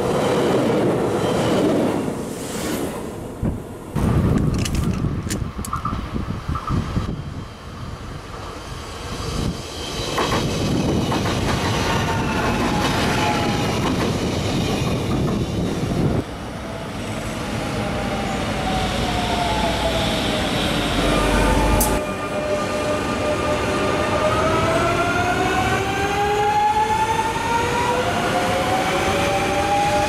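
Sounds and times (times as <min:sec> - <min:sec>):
train approaching with falling whine: 0:05.5 - 0:30.0
train wheels clattering over rails: 0:09.6 - 0:15.9.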